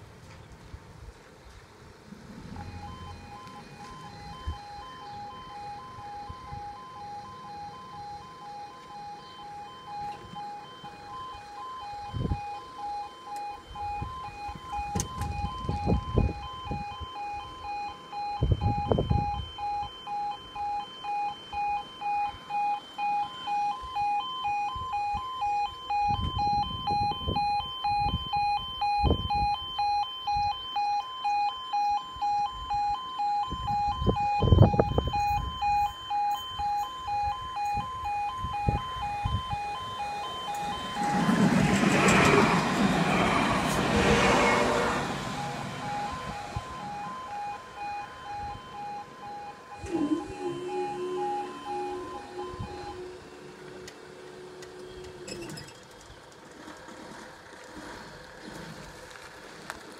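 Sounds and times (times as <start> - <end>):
pulsing crossing alarm tone: 2.4 - 56.0
tram rumbling: 39.8 - 59.7.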